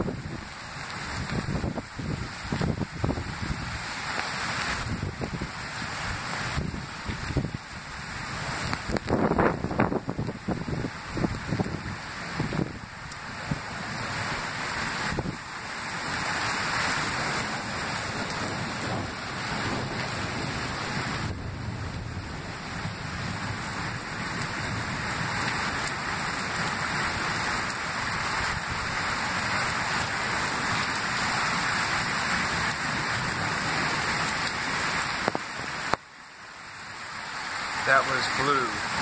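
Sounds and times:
heavy rain pouring: 0.0s - 39.0s.

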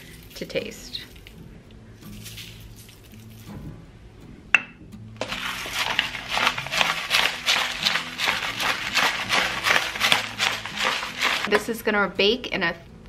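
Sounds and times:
pepper mill grinding: 2.0s - 3.6s, 5.2s - 11.8s.

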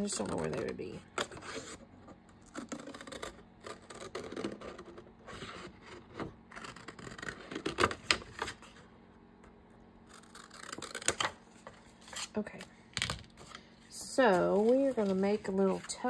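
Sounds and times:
paper rustling: 14.3s - 16.0s.

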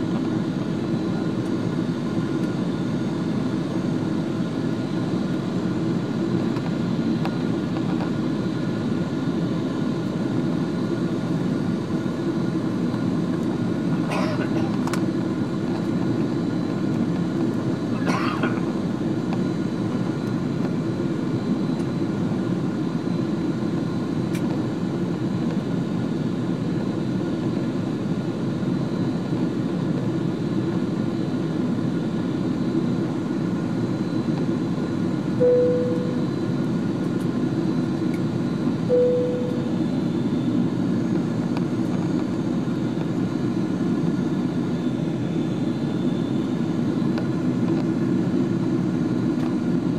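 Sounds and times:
airliner cabin drone: 0.0s - 49.9s
single-note cabin chimes: 35.4s - 36.2s, 38.9s - 39.8s.

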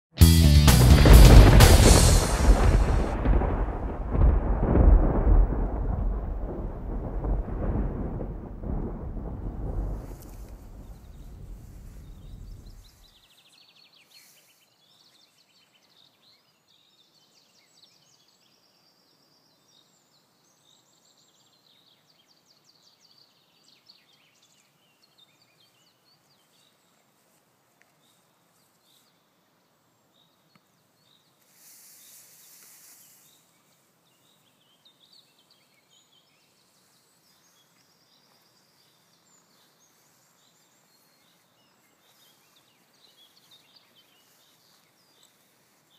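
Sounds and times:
hissing noise burst: 0.7s - 4.3s
low rumble: 0.7s - 12.9s.

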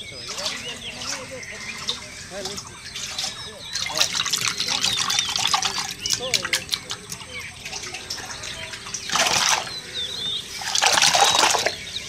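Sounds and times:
shallow water splashing: 0.0s - 12.0s
water trickling: 0.0s - 12.0s.

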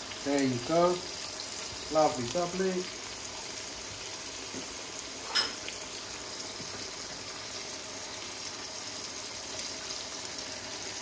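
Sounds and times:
tomatoes sizzling in oil: 0.0s - 11.0s
metal utensil clinking on pan: 5.3s - 5.6s.

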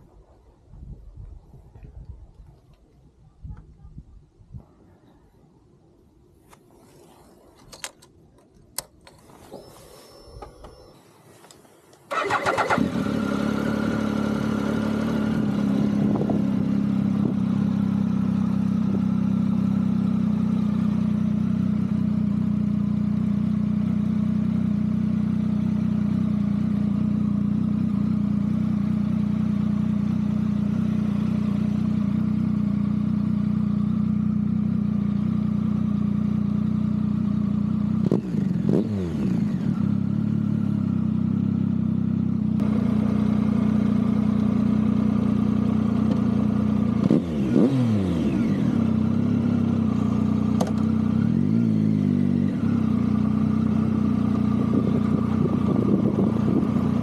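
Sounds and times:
engine throttle blips: 8.8s - 17.4s, 46.0s - 57.0s
motorcycle engine idling: 8.8s - 57.0s.

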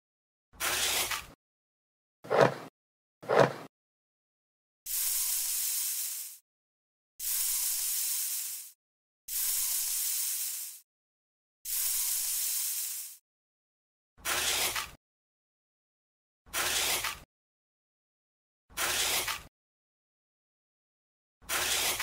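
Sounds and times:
bursts of hissing noise: 4.9s - 6.4s, 7.2s - 10.8s, 11.7s - 13.2s.

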